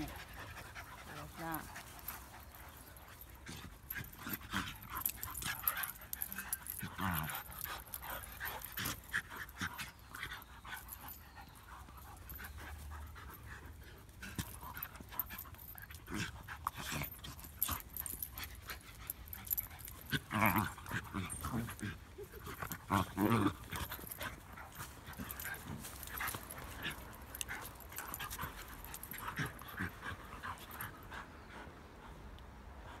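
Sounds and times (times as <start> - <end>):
dogs panting: 0.0 - 33.0
dogs scuffling on grass: 23.4 - 29.9.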